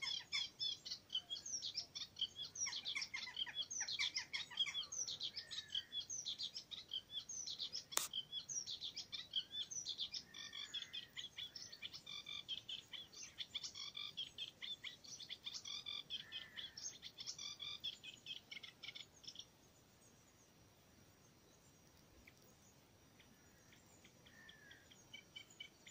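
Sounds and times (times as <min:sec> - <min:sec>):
bird chattering song: 0:00.0 - 0:19.5, 0:23.2 - 0:25.9
sharp click: 0:07.9 - 0:08.1.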